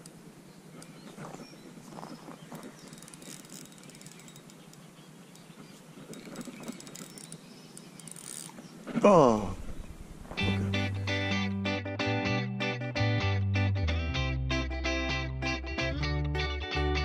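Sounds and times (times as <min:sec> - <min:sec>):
quiet lakeside ambience: 0:00.0 - 0:11.2
fishing reel clicking and rustling: 0:01.9 - 0:08.7.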